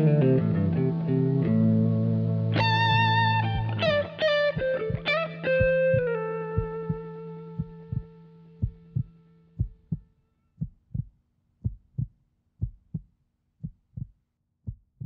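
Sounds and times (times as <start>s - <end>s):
electric guitar chord ringing: 0.0s - 9.6s
heartbeat thumps: 3.5s - 15.0s.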